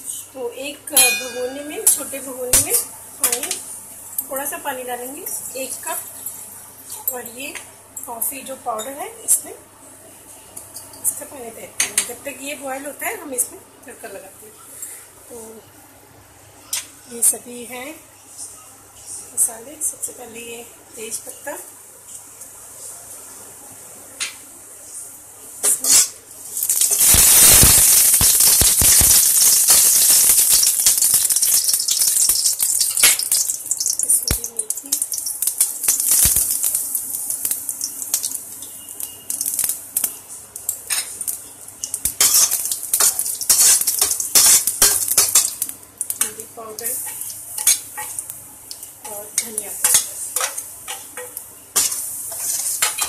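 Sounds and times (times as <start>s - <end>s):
utensils clinking against pan: 1.0s - 2.0s, 42.1s - 45.6s, 49.4s - 53.0s
spices sizzling in hot oil: 25.6s - 53.0s.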